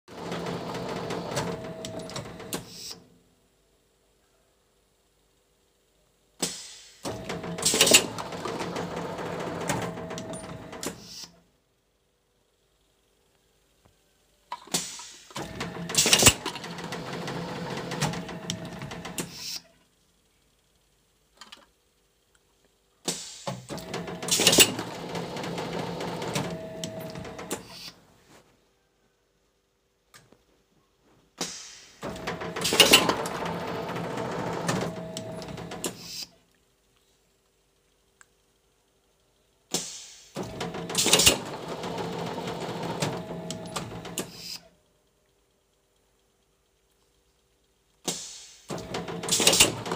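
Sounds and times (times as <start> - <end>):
machine clattering and clicking: 0.1 - 2.9, 7.1 - 11.1, 14.7 - 19.5, 23.1 - 27.8, 32.0 - 36.2, 39.8 - 44.6, 45.4 - 49.9
loud air hiss: 6.4 - 7.1, 31.4 - 32.0, 39.7 - 40.4, 48.1 - 48.7.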